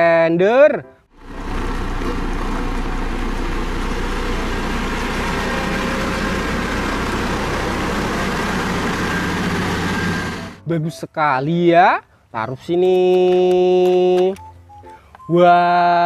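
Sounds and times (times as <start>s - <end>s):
road roller diesel engine running: 1.1s - 10.6s.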